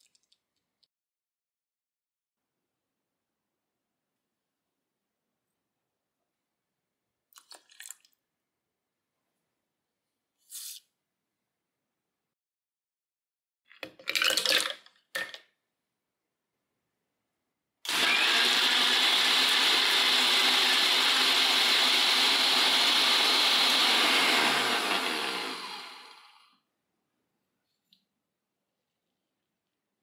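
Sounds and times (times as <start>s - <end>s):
mixer-grinder motor running: 17.9s - 26.5s.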